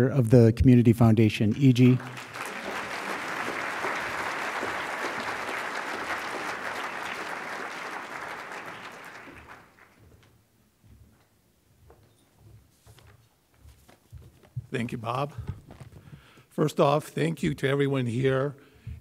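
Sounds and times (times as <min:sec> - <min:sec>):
audience applauding: 0:01.6 - 0:10.0.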